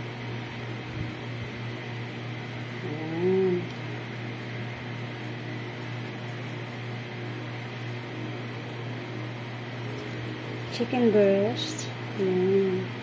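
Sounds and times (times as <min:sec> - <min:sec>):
low electrical hum: 0:00.0 - 0:13.0
person humming: 0:02.8 - 0:03.8, 0:12.2 - 0:12.9.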